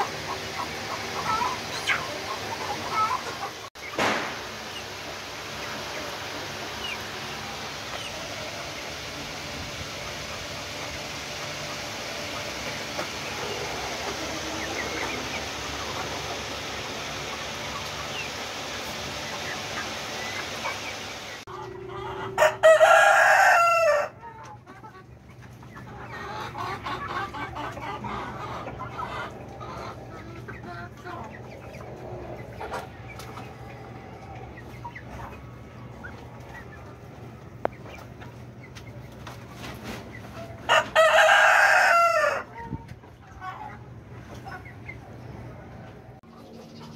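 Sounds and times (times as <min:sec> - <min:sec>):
chickens clucking and chattering: 0:00.0 - 0:46.9
chicks peeping: 0:00.0 - 0:46.9
young cockerel crowing: 0:22.4 - 0:24.2, 0:40.7 - 0:42.5.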